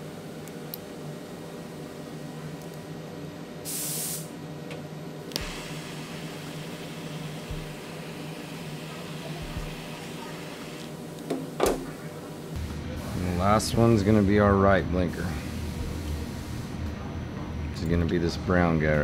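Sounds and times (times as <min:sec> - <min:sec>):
gas hiss: 0:03.6 - 0:04.4, 0:05.3 - 0:13.8
steady flame hiss: 0:03.6 - 0:04.5, 0:05.2 - 0:16.8
torch lighting click: 0:05.3 - 0:05.8.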